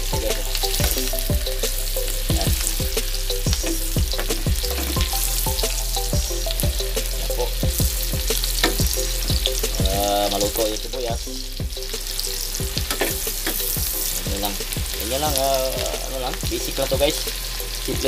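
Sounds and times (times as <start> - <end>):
onion sizzling in hot oil: 0.0 - 18.0.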